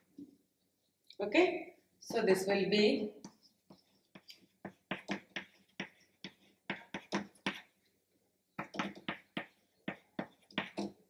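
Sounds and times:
chalk tapping and scraping on chalkboard: 3.2 - 7.8, 8.6 - 11.0.

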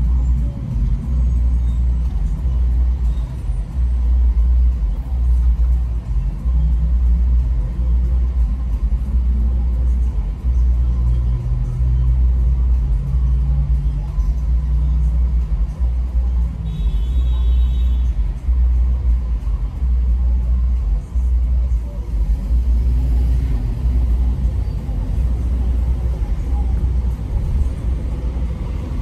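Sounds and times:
car engine idling: 0.0 - 29.0.

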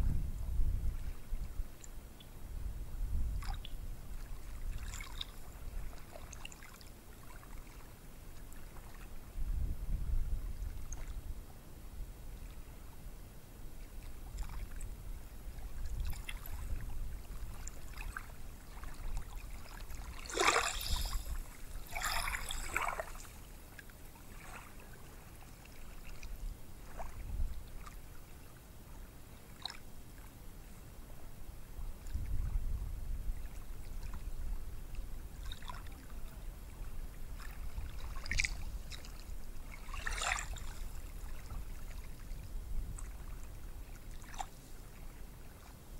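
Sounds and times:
splashing waves: 17.5 - 26.2
waves breaking on a beach: 17.7 - 23.6.

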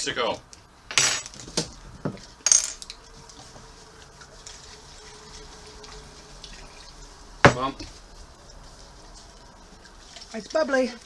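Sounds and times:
faint fizz: 3.7 - 11.0
water pouring into plastic cup: 3.8 - 7.4.

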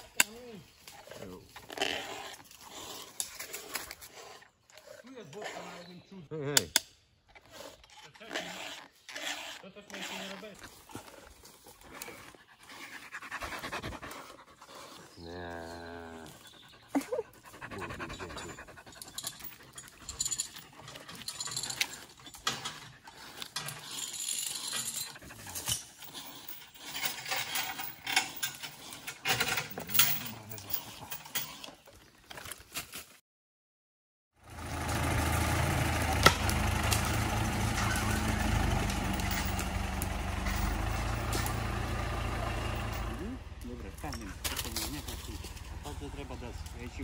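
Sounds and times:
dog panting: 9.9 - 15.4, 16.1 - 29.2.

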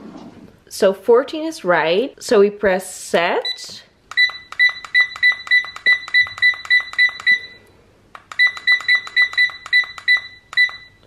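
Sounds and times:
digital clock beeping: 3.4 - 7.6, 8.3 - 11.0.

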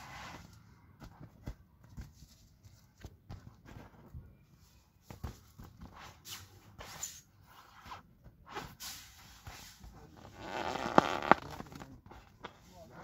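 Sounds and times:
vinyl crinkling: 10.0 - 13.0.

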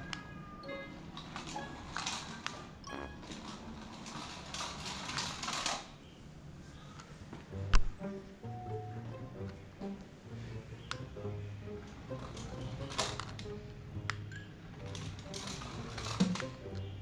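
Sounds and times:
toy motor and wheels whirring: 14.8 - 16.5.

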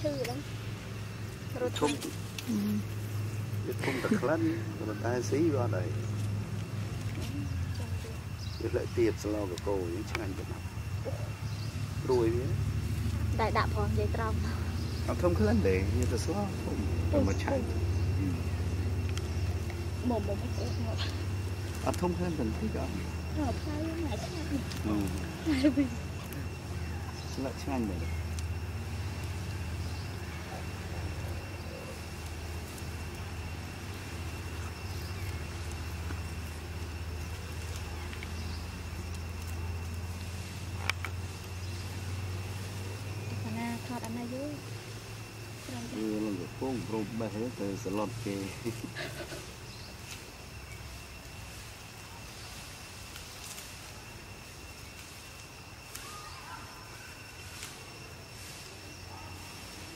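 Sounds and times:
high-pitched whine: 0.0 - 48.9
background hiss: 0.0 - 59.9
steady low hum: 0.0 - 59.9
faint ticks: 19.0 - 19.8, 34.6 - 41.8.

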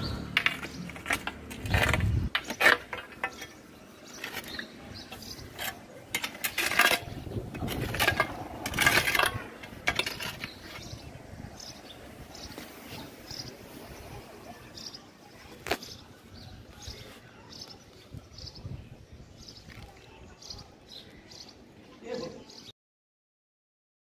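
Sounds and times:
concrete slabs scraping and knocking: 0.0 - 16.0.

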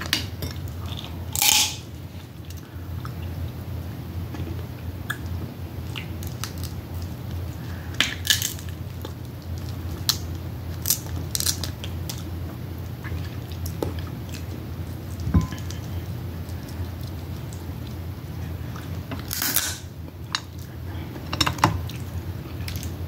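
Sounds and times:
steady low hum: 0.0 - 23.0
crab shells cracking: 5.9 - 12.3, 19.2 - 19.9
chewing: 8.3 - 19.3, 20.0 - 23.0.

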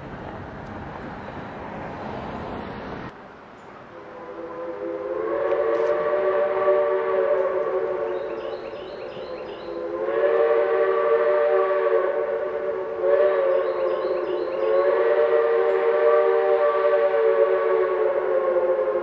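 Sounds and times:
train whistle blasts: 3.9 - 19.0.

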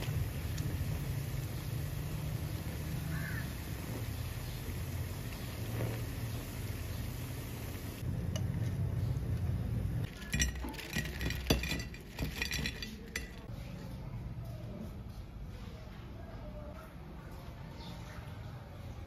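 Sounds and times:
hot oil sizzling: 0.0 - 10.7
wire strainer clinking on plate: 10.1 - 13.5.

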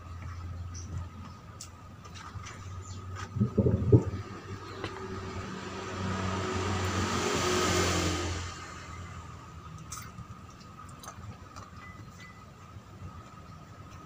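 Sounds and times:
vehicle passing by: 3.1 - 9.7.

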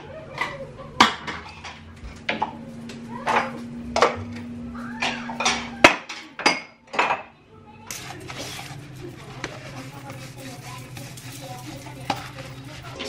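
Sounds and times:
steady low hum: 0.0 - 6.1
dishes clinking and knocking: 0.4 - 2.6, 3.2 - 4.4, 5.0 - 7.4.

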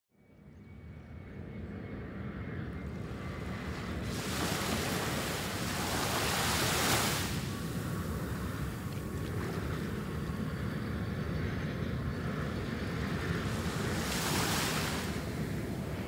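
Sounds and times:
wind on microphone: 1.4 - 16.0
waves washing onto shore: 3.8 - 9.8, 13.2 - 16.0.

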